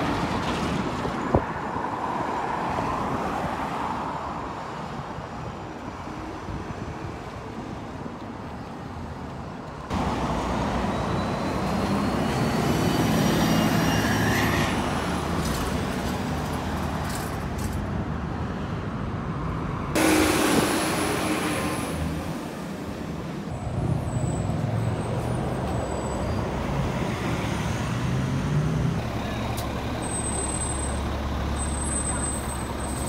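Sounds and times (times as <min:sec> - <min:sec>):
bus engines passing: 0:00.0 - 0:33.0
bus accelerating: 0:08.8 - 0:18.6, 0:19.4 - 0:33.0
loud burst of noise: 0:20.0 - 0:22.0.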